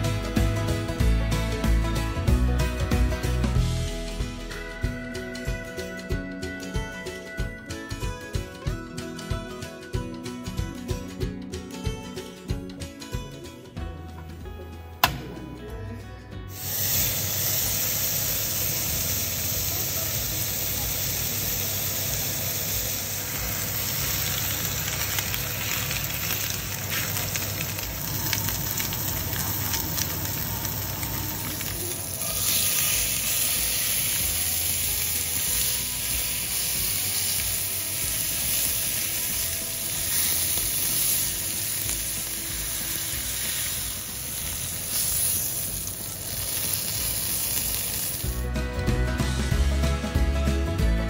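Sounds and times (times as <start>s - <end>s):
music: 0.0s - 51.0s
steak sizzling in a frying pan: 16.5s - 48.4s.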